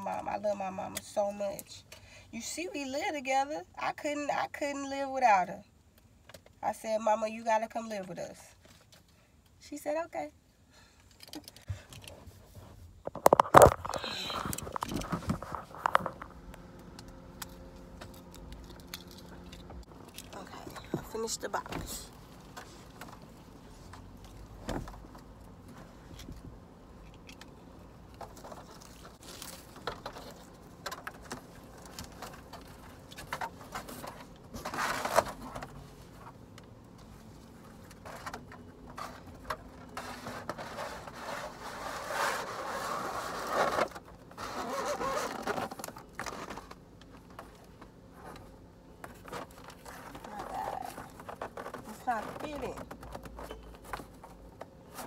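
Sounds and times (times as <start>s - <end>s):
cardboard rustling and scraping: 11.6s - 16.5s, 28.2s - 55.0s.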